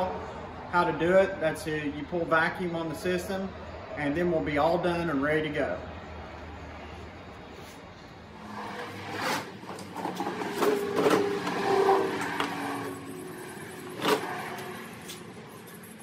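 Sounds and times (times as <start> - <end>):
plastic case scraping: 8.4 - 13.0.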